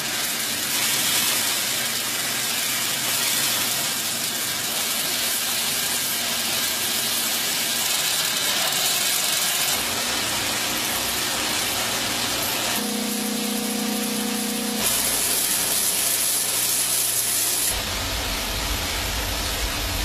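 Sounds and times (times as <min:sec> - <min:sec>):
minting machinery running: 0:00.0 - 0:20.0.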